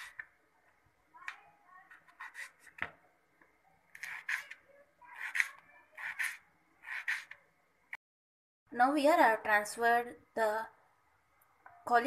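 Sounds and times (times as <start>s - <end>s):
knife slicing potato on board: 3.9s - 7.4s.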